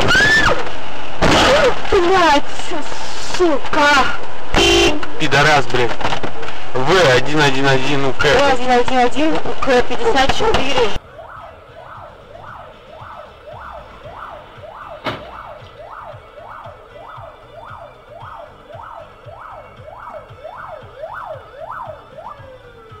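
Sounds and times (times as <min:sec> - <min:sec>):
emergency siren wailing: 0:10.9 - 0:23.0
sharp knock: 0:15.0 - 0:15.4.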